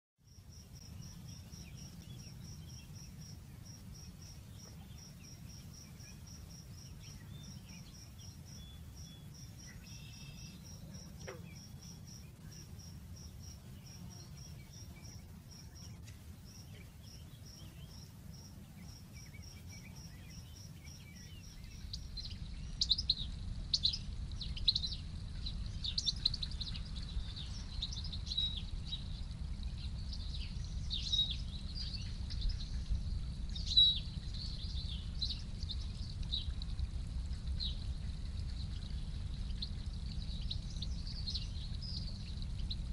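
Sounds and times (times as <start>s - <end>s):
high insect-like chirp: 0.2s - 42.9s
songbird chirps and twittering: 0.2s - 42.9s
low rumble: 21.3s - 42.9s.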